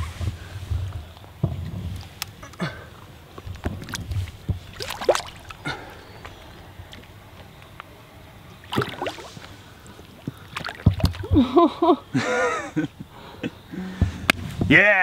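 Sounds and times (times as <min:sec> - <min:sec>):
water splashing: 0:03.5 - 0:07.1, 0:08.6 - 0:11.3.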